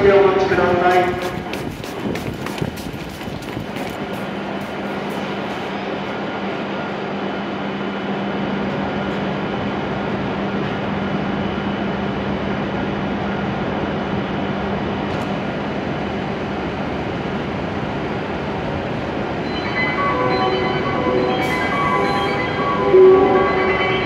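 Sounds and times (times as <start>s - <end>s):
platform ambience: 0.0s - 6.0s, 19.4s - 24.0s
train equipment running noise: 0.0s - 24.0s.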